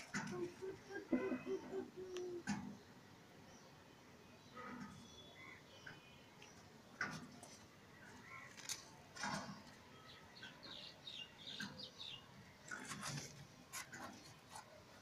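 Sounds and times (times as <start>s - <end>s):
small birds chirping: 10.0s - 12.3s.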